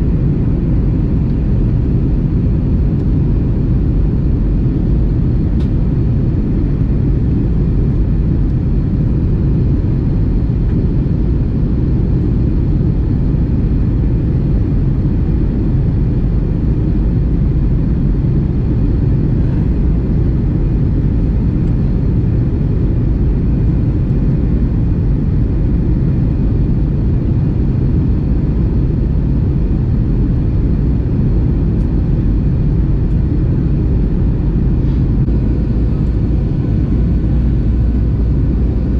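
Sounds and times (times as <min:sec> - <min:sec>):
faint steady whine: 0:00.0 - 0:38.9
jet engines rumbling: 0:00.0 - 0:38.9.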